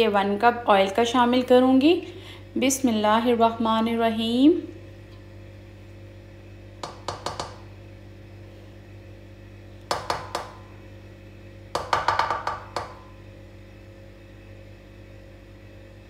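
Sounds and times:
steady low hum: 0.0s - 16.0s
cup tapping metal pan rim: 11.8s - 13.0s.

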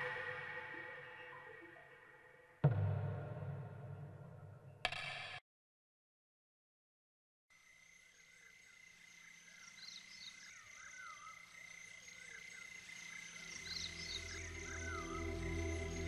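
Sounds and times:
steady high drone: 0.0s - 2.0s.

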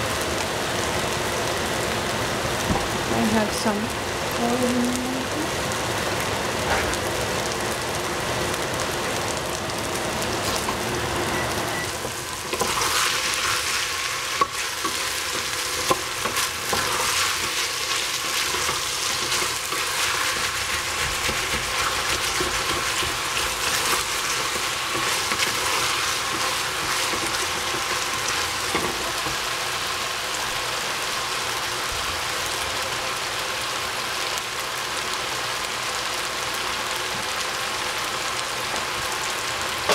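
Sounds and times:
vegetables sizzling in a pot: 0.0s - 39.9s
stirring clicks and scrapes: 12.4s - 29.4s.

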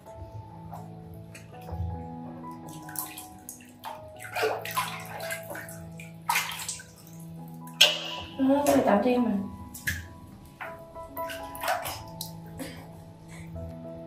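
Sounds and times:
water splashing in plastic basin: 2.6s - 9.0s, 9.7s - 12.4s.

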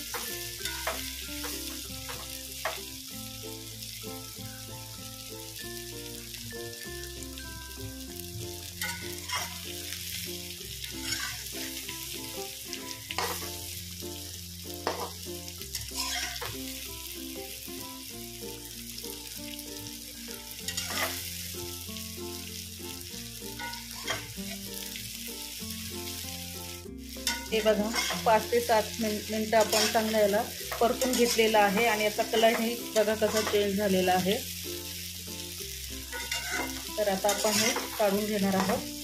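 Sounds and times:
food sizzling in oil: 0.0s - 39.0s
spatula scraping: 8.8s - 9.7s, 11.0s - 11.5s, 13.1s - 13.5s, 15.8s - 16.5s, 20.7s - 21.3s, 27.2s - 28.3s, 29.6s - 31.4s, 36.1s - 38.0s.

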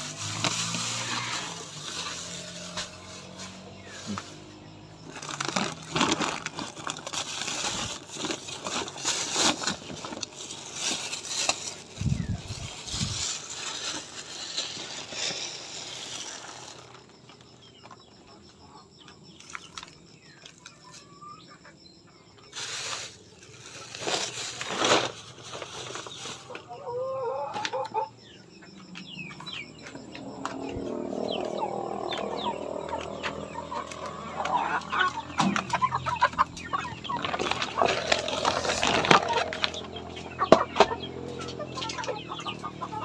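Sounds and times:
plastic sack rustling and crinkling: 0.0s - 17.2s, 22.5s - 26.7s, 35.3s - 40.0s.

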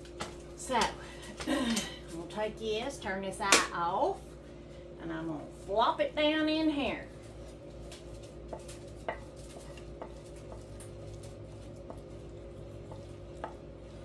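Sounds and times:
steady low hum: 0.0s - 14.0s
wooden spoon scraping saucepan: 7.0s - 14.0s.

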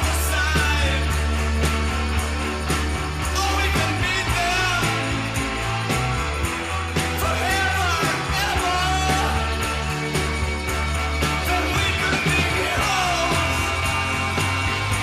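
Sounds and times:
drums and bass: 0.0s - 15.0s
person singing: 3.2s - 5.4s, 7.0s - 15.0s.

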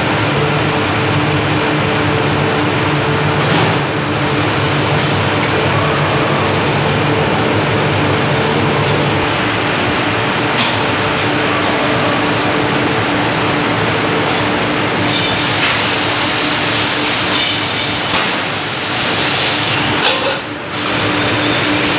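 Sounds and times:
loud hiss of spray and steam: 14.3s - 20.0s.

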